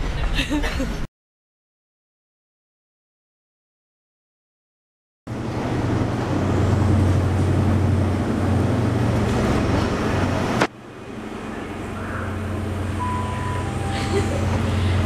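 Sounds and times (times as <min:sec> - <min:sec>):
engine rumble: 0:05.3 - 0:15.0.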